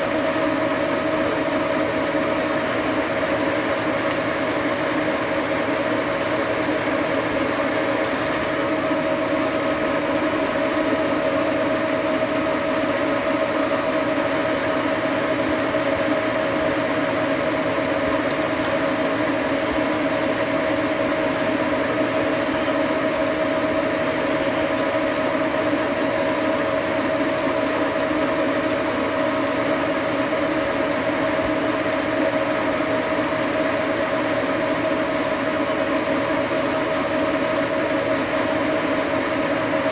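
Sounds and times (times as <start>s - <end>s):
lathe cutting metal: 2.0s - 8.9s, 14.1s - 25.1s, 29.6s - 34.9s, 38.2s - 39.9s.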